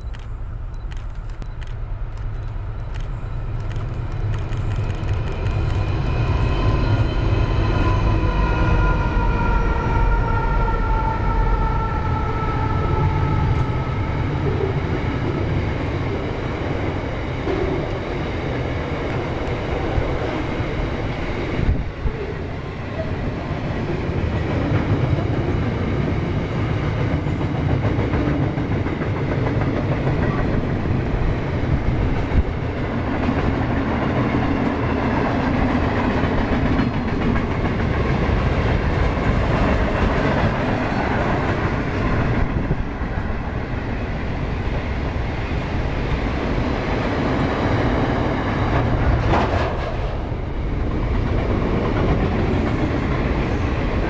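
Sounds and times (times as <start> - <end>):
freight wagons rumbling on rails: 0.0 - 10.7, 12.6 - 54.0
diesel locomotive engine passing: 0.0 - 54.0.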